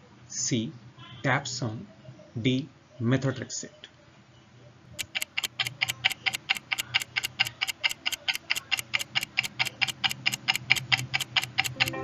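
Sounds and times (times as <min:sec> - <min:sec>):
clock ticking: 0:05.0 - 0:12.0.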